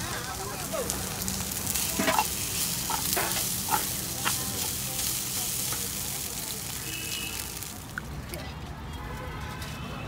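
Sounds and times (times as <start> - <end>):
noodles sizzling in a pan: 0.0 - 8.0.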